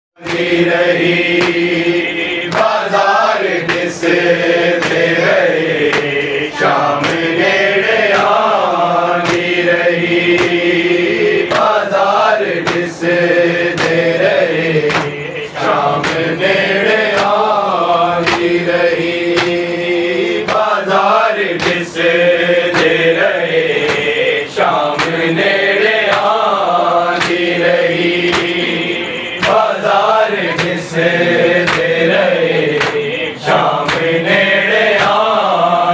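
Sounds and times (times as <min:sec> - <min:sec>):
hand slaps on chests: 0:00.2 - 0:35.4
men chanting in unison: 0:00.2 - 0:35.9.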